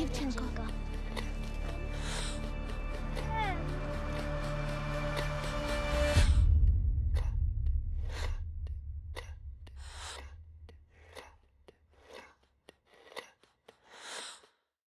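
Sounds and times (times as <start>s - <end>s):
deep low rumble: 0.0s - 11.1s
person breathing heavily: 1.2s - 2.9s, 9.7s - 14.7s.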